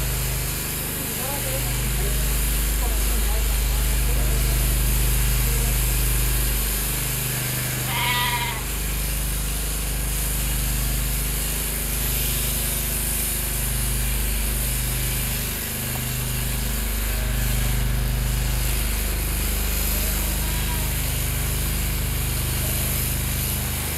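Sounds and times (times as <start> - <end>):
petrol generator running: 0.0 - 23.9
shearing handpiece humming: 0.0 - 23.9
sheep bleating: 7.7 - 8.8, 20.2 - 21.1.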